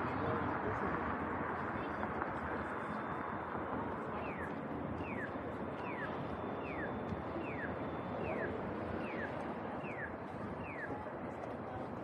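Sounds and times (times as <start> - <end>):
street traffic noise: 0.0 - 12.0
crossing signal chirping: 4.1 - 11.0.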